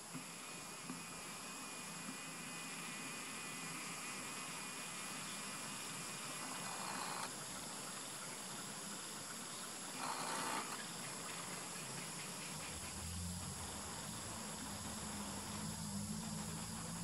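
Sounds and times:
hiss: 10.4s - 17.0s.

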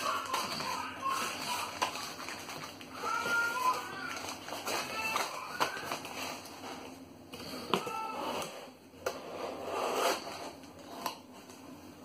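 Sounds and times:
paper sheets rustling: 0.0s - 7.6s.

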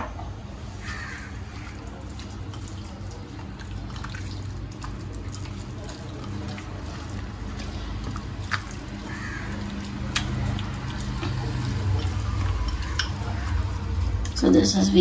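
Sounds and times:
low steady hum: 0.0s - 15.0s
hands squelching wet meat: 0.8s - 14.4s.

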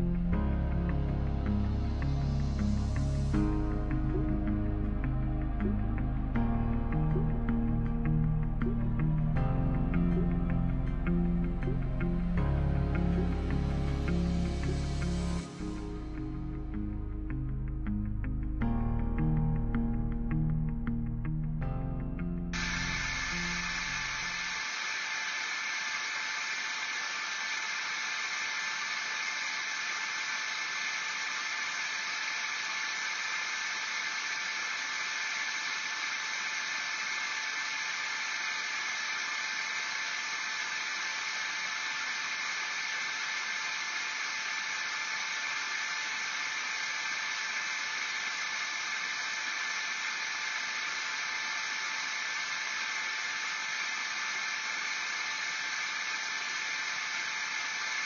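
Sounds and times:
white noise hiss: 22.6s - 58.0s.

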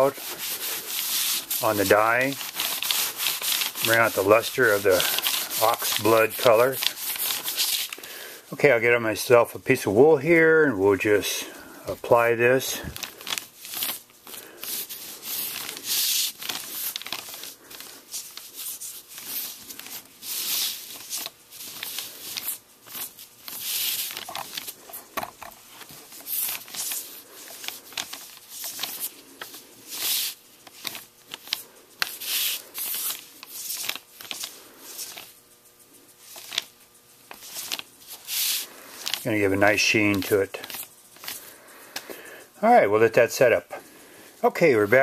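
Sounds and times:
pad rubbing on leather: 0.0s - 8.0s, 13.4s - 35.4s, 36.0s - 41.4s.

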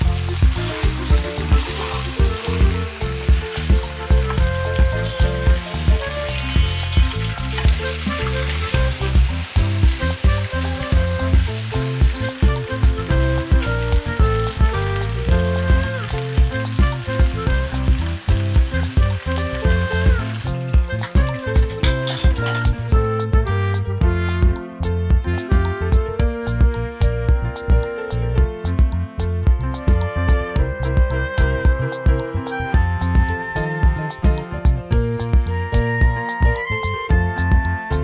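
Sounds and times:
fish sizzling in oil: 0.0s - 22.9s
instrumental music with steady beat: 0.0s - 38.0s.

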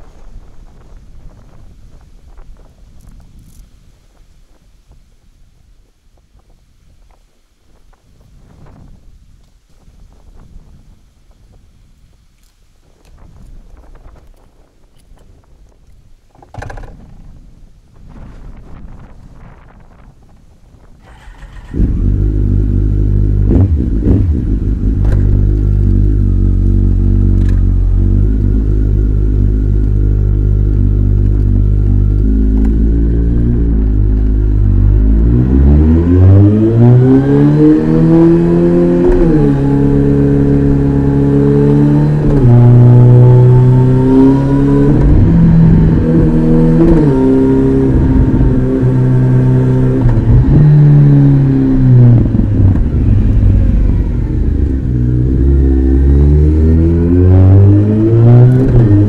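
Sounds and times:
motorcycle engine accelerating: 21.0s - 59.0s.

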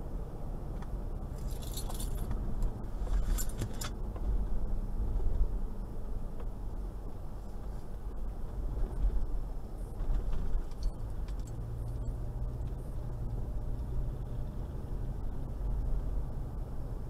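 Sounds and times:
car engine low rumble: 0.0s - 17.0s
light metallic jingling: 1.3s - 2.3s, 3.2s - 3.9s.

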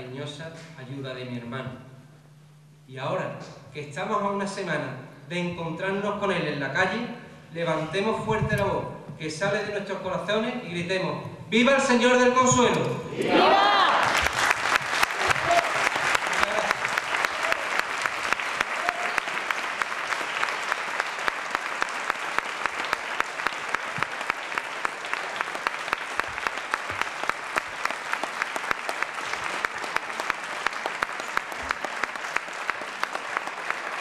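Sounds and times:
audience applauding: 13.5s - 34.0s.

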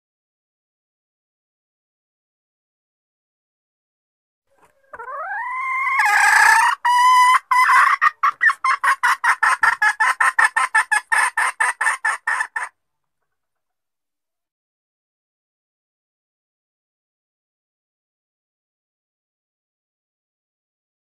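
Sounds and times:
jungle fowl hen calling: 4.5s - 12.8s.

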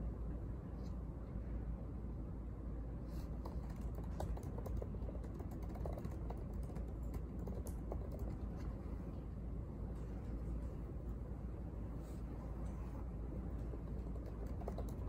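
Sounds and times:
low background hum: 0.0s - 15.0s
laptop keyboard clicks: 3.4s - 8.7s, 13.6s - 15.0s.

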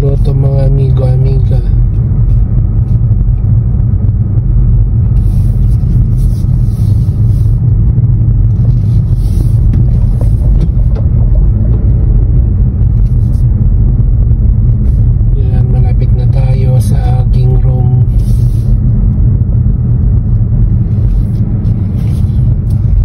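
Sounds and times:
car engine and road rumble: 0.0s - 23.0s.

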